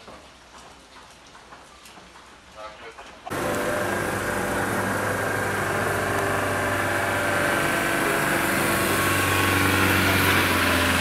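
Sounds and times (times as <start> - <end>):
vehicle engine idling: 3.3 - 11.0.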